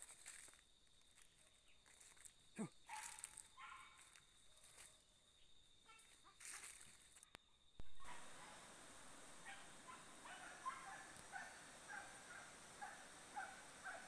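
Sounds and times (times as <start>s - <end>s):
footsteps rustling through leaves: 0.0s - 2.3s, 2.9s - 5.0s, 6.0s - 7.2s
faint animal calls: 7.9s - 14.0s.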